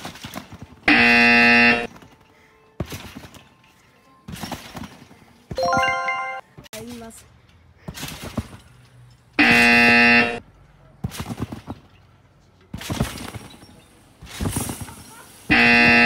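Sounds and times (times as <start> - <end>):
trampoline bouncing thuds: 0.0 - 2.2, 2.8 - 3.6, 4.2 - 5.6, 7.8 - 10.2, 11.0 - 16.0
electronic buzzer: 0.9 - 1.9, 9.4 - 10.4.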